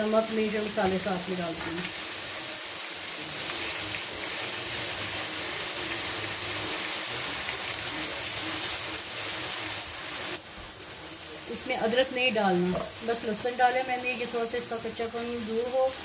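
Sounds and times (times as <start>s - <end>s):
onions sizzling in hot oil: 0.0s - 16.0s.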